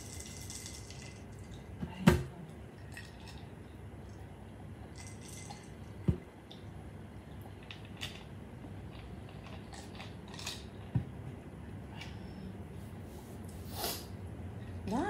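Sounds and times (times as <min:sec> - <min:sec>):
chewing and slurping noodles: 0:07.5 - 0:10.9.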